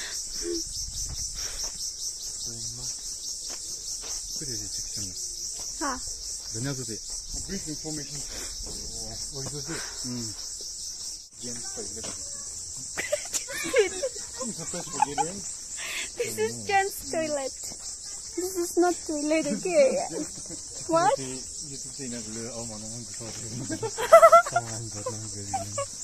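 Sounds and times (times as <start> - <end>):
insects trilling: 0.0 - 26.0.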